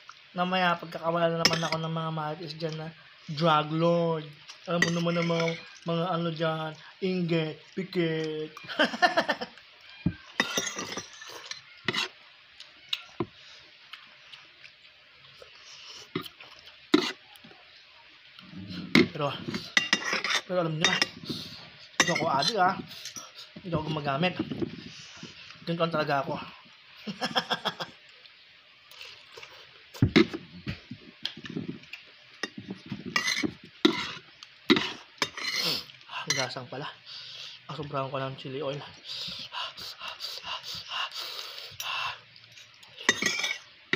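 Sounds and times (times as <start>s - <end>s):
cutlery clinking against bowl: 1.4s - 1.9s, 4.8s - 5.8s, 10.4s - 12.1s, 19.0s - 21.2s, 22.0s - 23.3s, 32.4s - 35.6s, 42.5s - 43.7s
spoon and fork scraping bowl: 4.8s - 5.8s, 10.4s - 12.2s, 17.0s - 17.2s, 19.0s - 21.4s, 22.0s - 23.4s, 32.4s - 35.7s, 42.5s - 43.7s.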